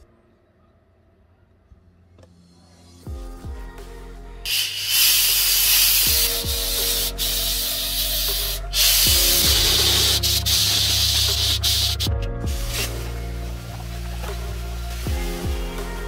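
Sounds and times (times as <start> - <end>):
background music with low beat: 1.8 - 16.0
steam cleaner hissing: 4.5 - 16.0.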